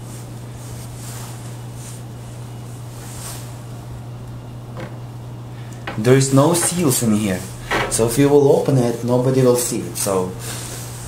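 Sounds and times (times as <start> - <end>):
low background hum: 0.0 - 11.0
soft handling rustles: 0.1 - 3.8.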